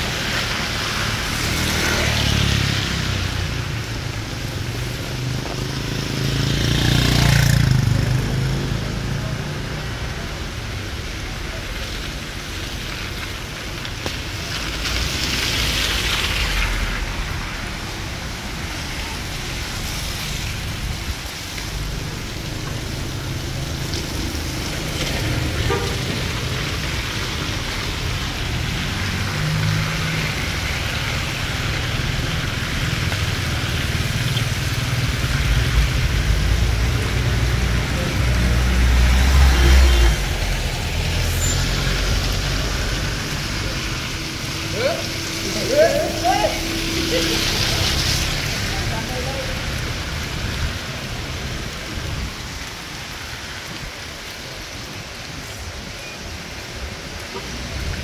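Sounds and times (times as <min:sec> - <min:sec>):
traffic rumble: 0:00.0 - 0:58.0
tyre hiss on wet road: 0:00.0 - 0:58.0.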